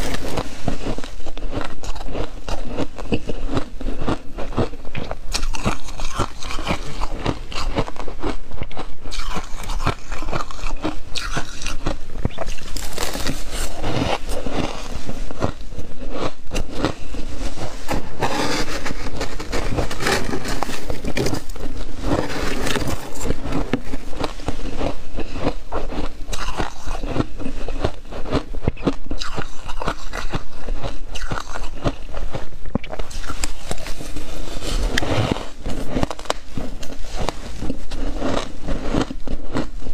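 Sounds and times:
ice being chewed: 0:00.0 - 0:39.9
frost scraped from plastic drawer: 0:17.5 - 0:23.3.

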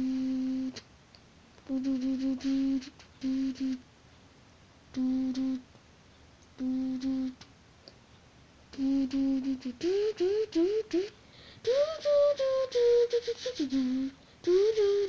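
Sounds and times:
person humming: 0:00.0 - 0:00.8, 0:01.6 - 0:03.8, 0:04.9 - 0:05.7, 0:06.6 - 0:07.5, 0:08.7 - 0:15.0.

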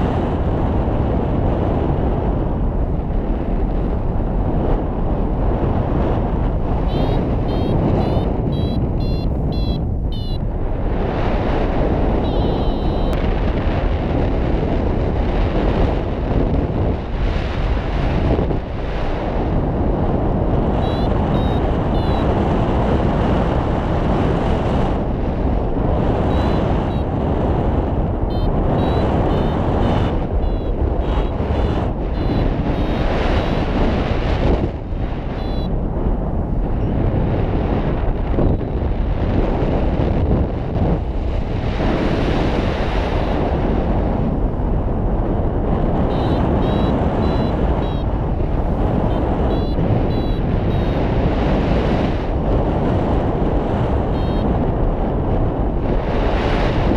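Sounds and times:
quick high variometer beeps: 0:06.8 - 0:10.4, 0:12.2 - 0:13.2, 0:20.8 - 0:22.4, 0:26.2 - 0:27.1, 0:28.3 - 0:33.8, 0:35.3 - 0:35.7, 0:46.0 - 0:48.1, 0:48.8 - 0:51.2, 0:54.1 - 0:54.5.

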